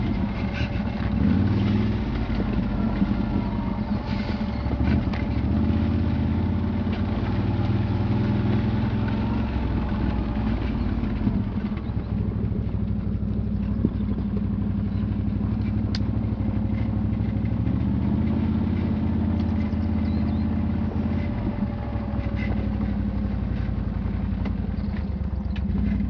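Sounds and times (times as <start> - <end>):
clicks and knocks from rough ground: 0.0 - 26.0
quad bike engine running: 0.0 - 26.0.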